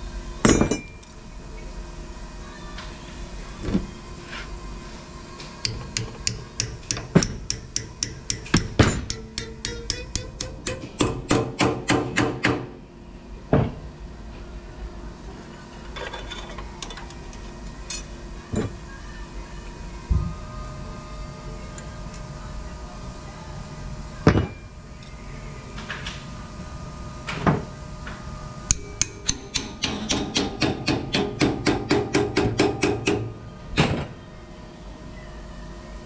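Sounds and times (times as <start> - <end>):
hammer striking steel bar: 5.6 - 12.7, 28.7 - 33.3.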